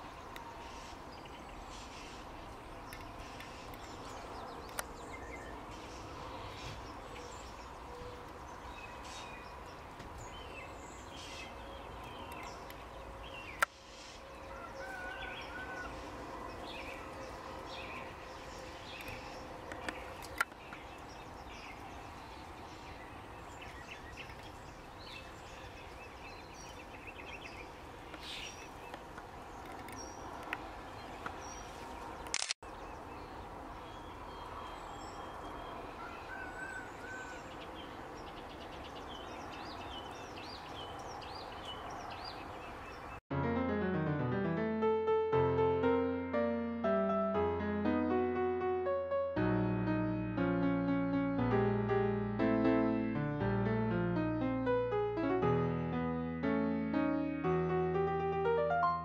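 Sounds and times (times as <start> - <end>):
birds calling: 0.0 - 43.2
sharp clicks: 32.2 - 32.6.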